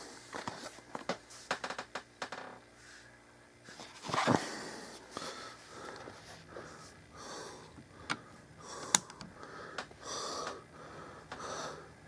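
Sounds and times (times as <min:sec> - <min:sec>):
breathing close to microphone: 0:04.3 - 0:12.0.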